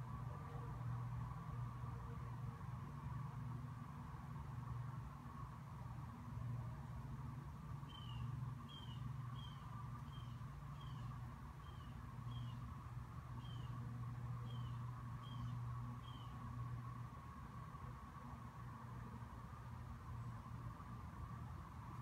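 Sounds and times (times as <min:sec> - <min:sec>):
bird chirping: 0:07.9 - 0:12.7, 0:13.4 - 0:13.8, 0:14.4 - 0:16.4.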